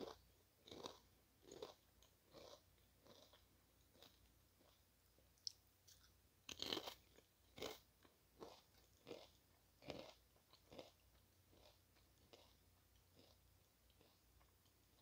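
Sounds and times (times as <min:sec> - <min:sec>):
crunching potato chip: 0:05.9 - 0:07.8.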